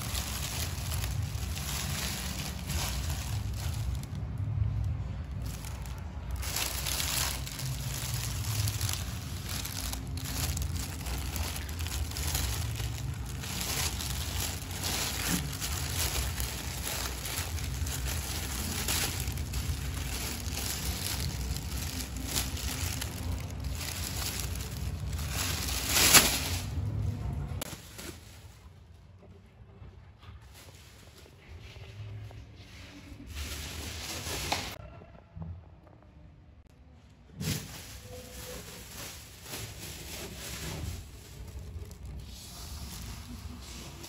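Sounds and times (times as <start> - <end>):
plastic bag crinkling: 0.0 - 27.0, 37.4 - 44.0.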